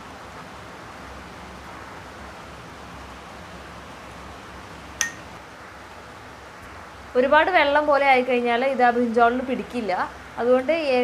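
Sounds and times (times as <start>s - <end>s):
background hiss: 0.0s - 11.0s
metal spoon clinking glass bowl: 5.0s - 5.3s.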